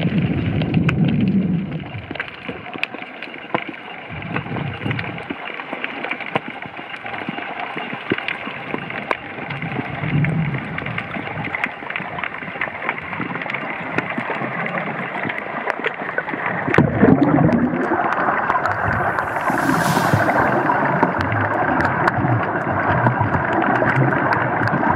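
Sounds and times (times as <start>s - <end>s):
underwater rushing hiss: 18.6s - 21.7s.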